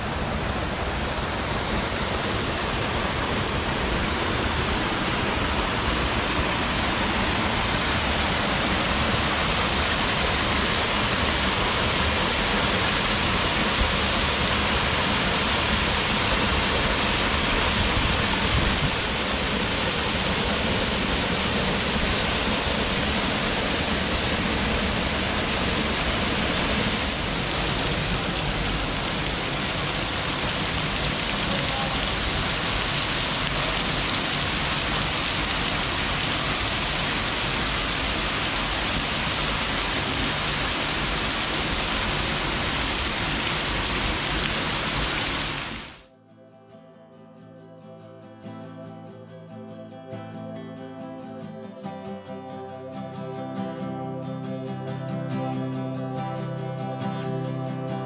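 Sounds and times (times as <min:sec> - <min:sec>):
waterfall pouring: 0:01.5 - 0:46.0.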